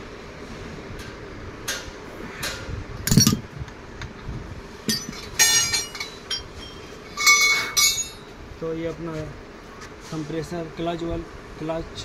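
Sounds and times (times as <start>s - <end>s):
metal tools clinking: 3.1s - 3.4s, 4.9s - 8.3s.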